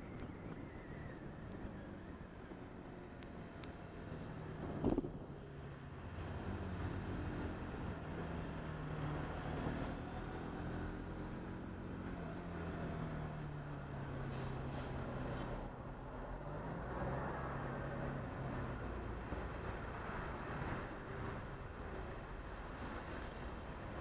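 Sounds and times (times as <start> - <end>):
road noise: 0.0 - 24.0
short hiss: 14.3 - 15.1.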